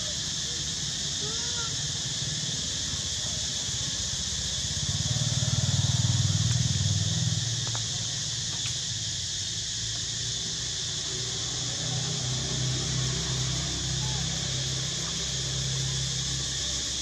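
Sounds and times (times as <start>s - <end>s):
steady high hiss: 0.0s - 17.0s
passing vehicle engine hum: 2.2s - 17.0s.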